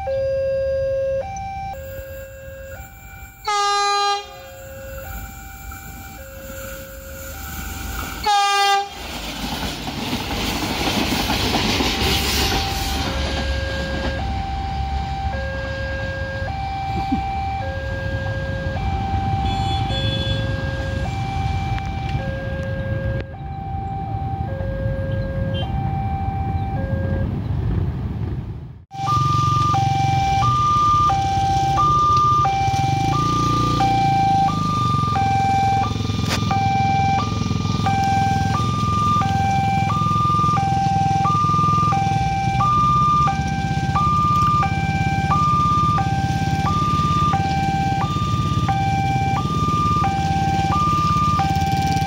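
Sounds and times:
two-tone crossing alarm: 0.0s - 8.9s, 12.2s - 27.4s, 28.9s - 52.0s
motorbikes idling: 29.1s - 52.0s.

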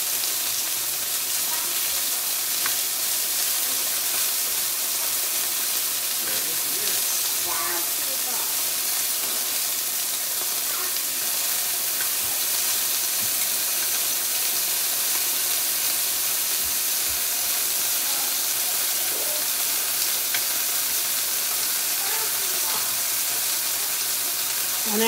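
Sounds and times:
chicken sizzling in a frying pan: 0.0s - 25.0s
tongs turning meat: 0.6s - 25.0s.

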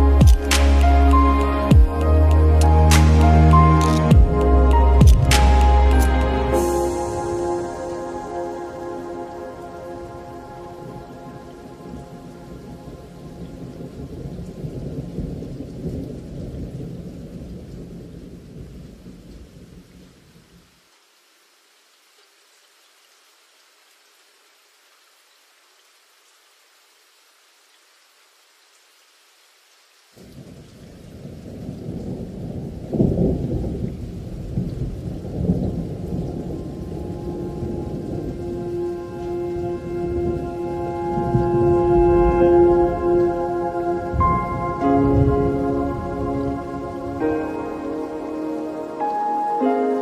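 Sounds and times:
low held musical tone: 0.0s - 14.3s, 36.1s - 50.0s
thunder rumble: 0.0s - 19.9s, 30.2s - 49.0s
rain: 0.0s - 50.0s
rolling thunder rumble: 30.2s - 49.0s.

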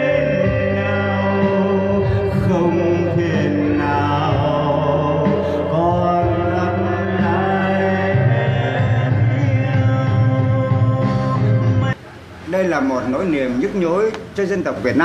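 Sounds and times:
backing music with bass line: 0.0s - 12.0s
man singing: 0.0s - 12.0s.

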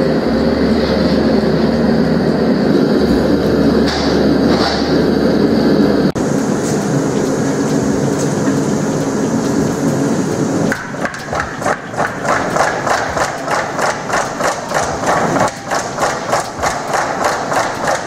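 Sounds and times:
gas forge burner roaring: 0.0s - 18.0s
power hammer pounding steel: 2.6s - 5.2s, 7.0s - 18.0s.

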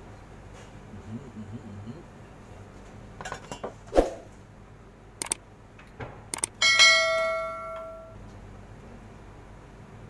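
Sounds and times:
sharp double clicks: 5.2s - 5.4s, 6.3s - 6.6s
loud bell ding: 6.6s - 8.2s.

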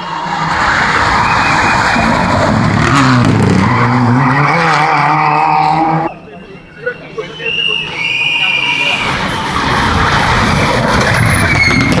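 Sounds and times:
rally car engine at high revs: 2.0s - 6.1s.

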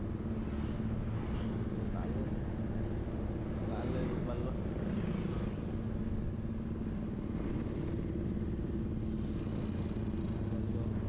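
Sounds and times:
road noise: 0.0s - 11.0s.

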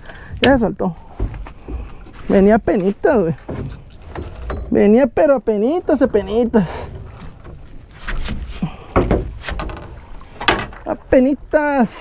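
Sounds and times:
fishing gear knocking on boat hull: 0.3s - 4.8s, 8.9s - 10.8s.

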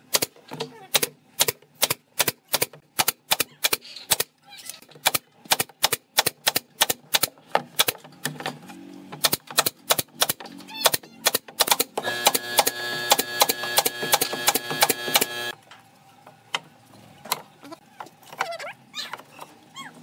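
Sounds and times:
nail gun firing into boards: 0.0s - 4.3s, 5.0s - 8.1s, 9.2s - 15.5s.

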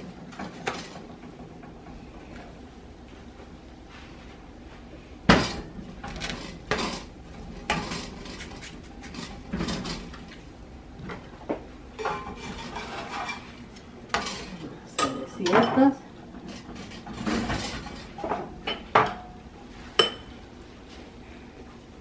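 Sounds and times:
griddle clattering on stove grate: 5.3s - 10.3s, 12.0s - 19.4s.

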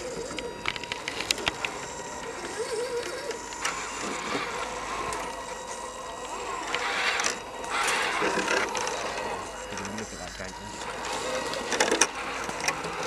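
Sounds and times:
small electric motor whining: 0.0s - 13.0s.

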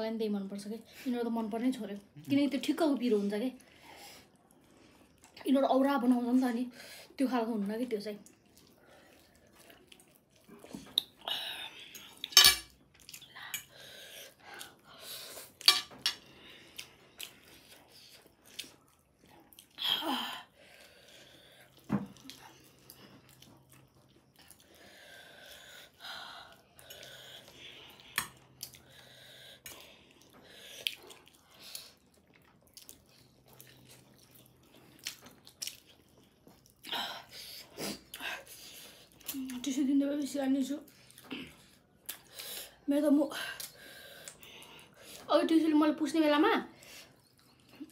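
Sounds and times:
quiet chewing: 0.8s - 5.6s, 7.6s - 45.3s, 46.7s - 47.9s
tableware clicking and clinking: 12.3s - 12.8s.

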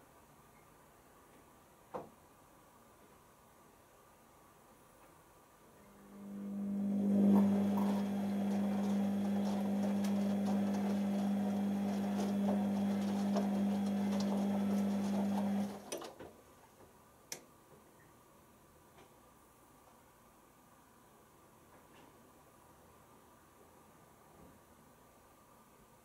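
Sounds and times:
washing machine motor humming: 5.9s - 16.0s
wet laundry rustling: 6.9s - 16.0s
click: 17.3s - 17.5s.

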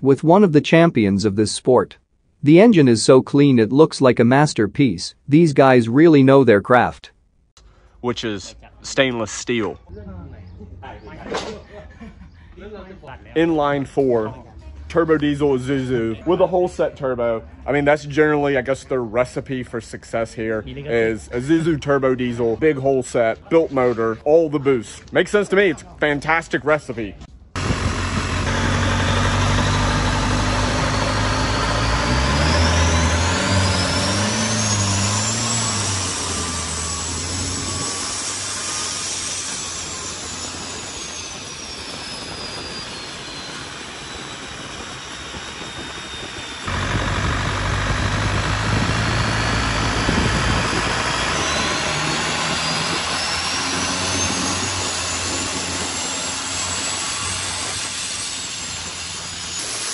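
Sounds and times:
diesel boat engine running hard: 27.6s - 59.9s
turbo whistle: 27.8s - 59.9s.

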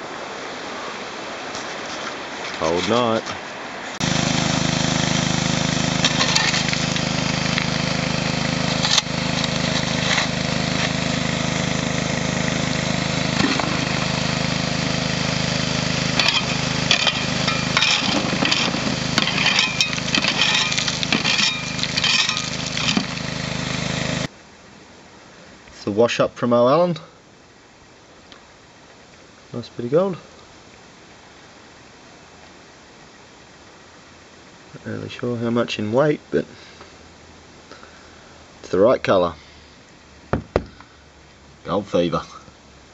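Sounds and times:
water splashing: 1.3s - 24.3s
gravel shovelled onto metal grate: 4.0s - 11.8s, 13.3s - 24.3s
small water pump engine running: 4.0s - 24.3s.

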